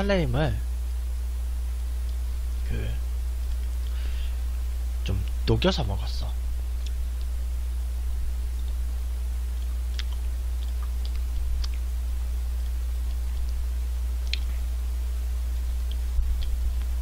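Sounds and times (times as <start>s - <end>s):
steady low hum: 0.0s - 17.0s
wet licking and biting clicks: 3.4s - 4.0s, 6.8s - 7.3s, 8.6s - 8.8s, 9.5s - 11.9s, 12.6s - 14.6s, 15.5s - 17.0s.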